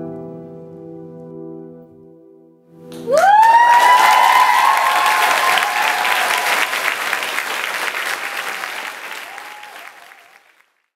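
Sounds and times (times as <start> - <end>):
audience applauding: 2.9 - 10.9.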